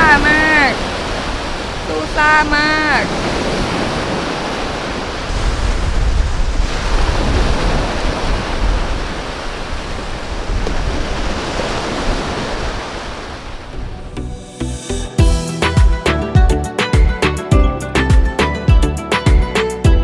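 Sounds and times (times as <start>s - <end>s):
waves washing up a beach: 0.0s - 14.0s
wind rumbling on microphone: 0.0s - 14.7s
music: 13.8s - 20.0s.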